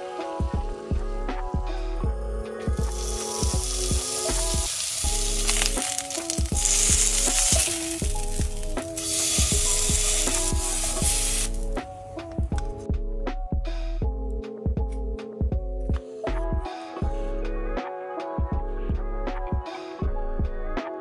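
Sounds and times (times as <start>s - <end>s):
background music with steady beat: 0.0s - 21.0s
meat sizzling in frying pan: 2.8s - 11.8s.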